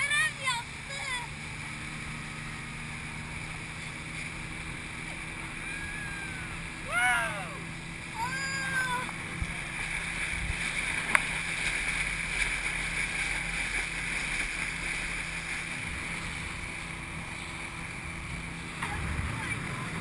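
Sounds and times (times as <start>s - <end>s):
outboard motor running: 0.0s - 20.0s
water rushing off hull: 0.0s - 20.0s.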